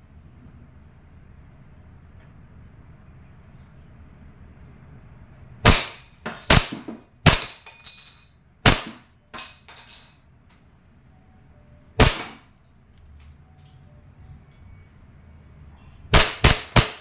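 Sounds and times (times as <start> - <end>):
airsoft pistol shots: 5.6 - 7.6, 8.6 - 9.0, 12.0 - 12.4, 16.1 - 17.0
pellets clinking on metal target: 5.7 - 10.3.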